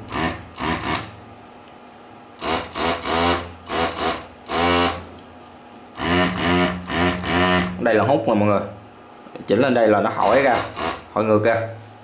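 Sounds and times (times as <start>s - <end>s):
vacuum pump bursts: 0.0s - 1.2s, 2.4s - 5.2s, 5.9s - 8.0s, 10.2s - 11.3s.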